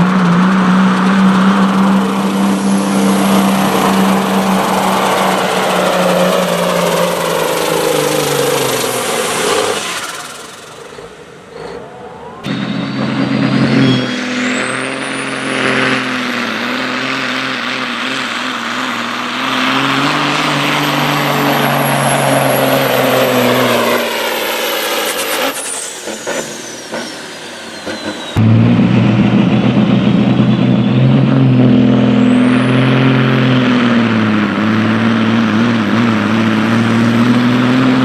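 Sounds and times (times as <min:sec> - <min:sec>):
diesel truck engine labouring: 0:00.0 - 0:38.0
high whine: 0:00.0 - 0:38.0.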